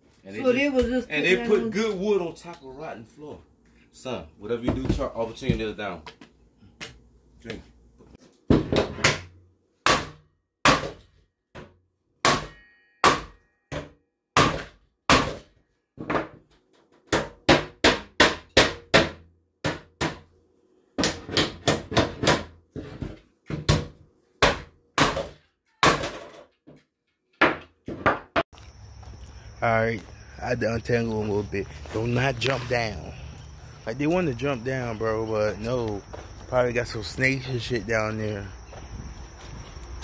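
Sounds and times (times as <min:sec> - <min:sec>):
hammer striking wood: 0:08.5 - 0:16.4, 0:17.1 - 0:20.3, 0:21.0 - 0:22.6, 0:23.5 - 0:26.4.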